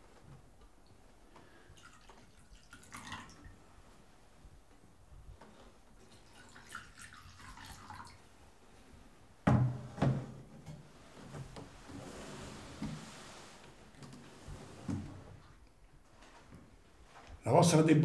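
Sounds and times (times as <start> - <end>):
wine trickling into goblets: 1.7 - 3.6, 6.0 - 8.3.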